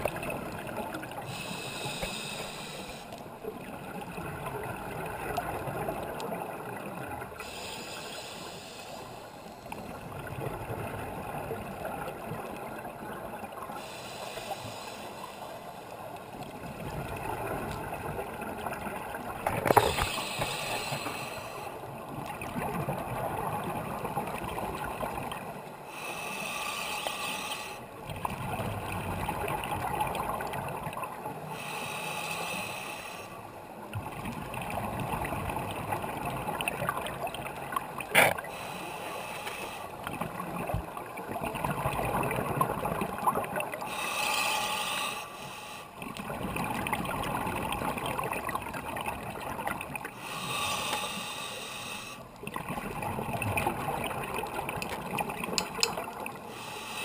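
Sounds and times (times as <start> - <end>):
scuba regulator breathing hiss: 1.2 - 3.2, 7.4 - 9.7, 13.8 - 15.8, 19.8 - 21.8, 25.9 - 27.9, 31.5 - 33.4, 38.5 - 40.0, 43.8 - 46.0, 50.2 - 52.2, 56.5 - 57.0
bubbling water: 40.0 - 43.9, 46.0 - 50.2, 52.4 - 56.5.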